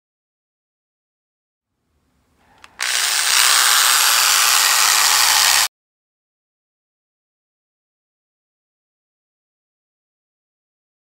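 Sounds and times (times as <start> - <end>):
rotary tool running: 2.8 - 5.7.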